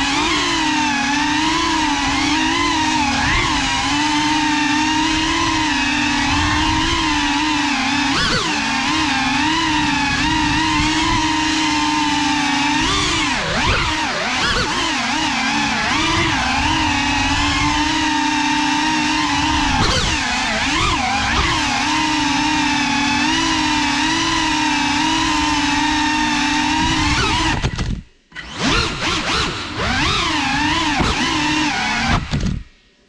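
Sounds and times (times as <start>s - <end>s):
drone motors whining: 0.0s - 32.8s.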